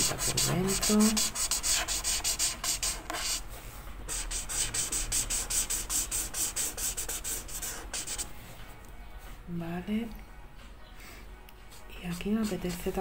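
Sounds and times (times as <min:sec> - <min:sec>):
marker scratching on paper: 0:00.0 - 0:03.4, 0:04.1 - 0:08.3, 0:11.7 - 0:13.0.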